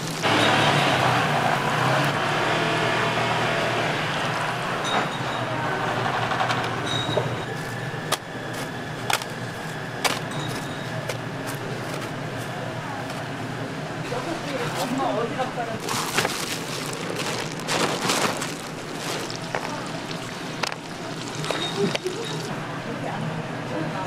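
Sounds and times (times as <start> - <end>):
deep-fryer oil sizzling: 0.0 - 4.8, 16.6 - 22.6
metal basket and tongs clanking: 15.8 - 22.5.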